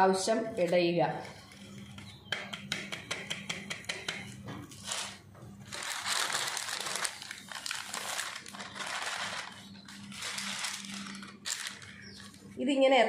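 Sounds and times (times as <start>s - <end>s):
paper crinkling and rustling: 4.7s - 12.5s.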